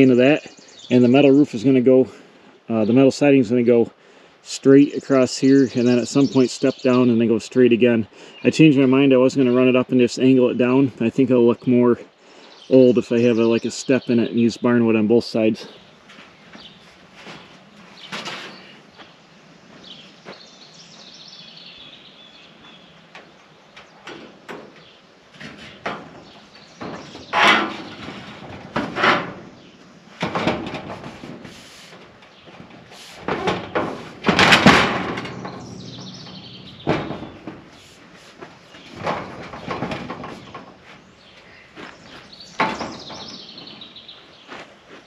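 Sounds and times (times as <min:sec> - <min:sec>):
steel siding panel rattling: 0:16.0 - 0:18.8, 0:22.9 - 0:44.5.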